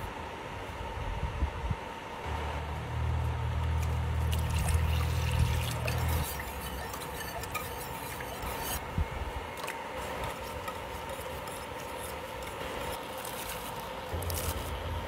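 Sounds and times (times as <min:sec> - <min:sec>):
whisk scraping metal saucepan: 0:03.8 - 0:08.8, 0:09.6 - 0:14.7.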